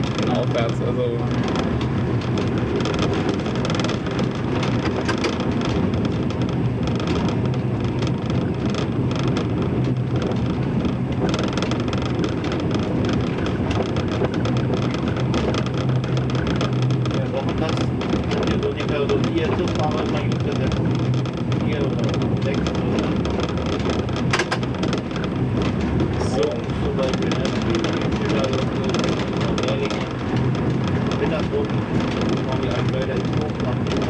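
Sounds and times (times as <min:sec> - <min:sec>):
clicks and knocks: 0:00.0 - 0:34.0
diesel engine drone: 0:00.0 - 0:34.0
wheels rattling on rail: 0:00.0 - 0:34.0.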